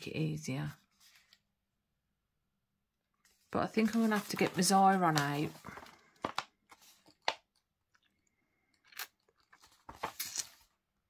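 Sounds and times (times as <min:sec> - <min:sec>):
paper sheets rustling: 0:00.8 - 0:01.4, 0:03.2 - 0:07.4, 0:09.5 - 0:10.7.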